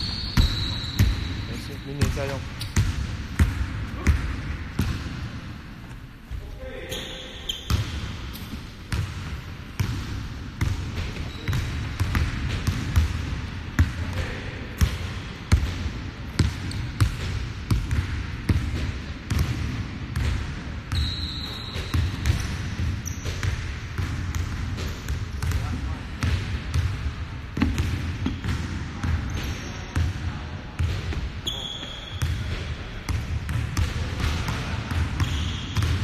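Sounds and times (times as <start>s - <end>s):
high squeak: 6.8s - 7.7s.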